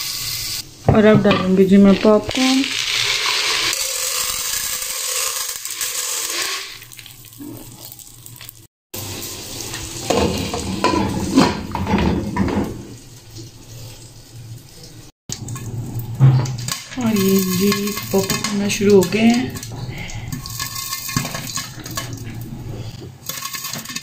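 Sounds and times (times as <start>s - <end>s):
butter sizzling in a pot: 0.0s - 0.8s, 1.5s - 14.7s, 15.3s - 24.0s
kernels tipped into pot: 23.2s - 24.0s.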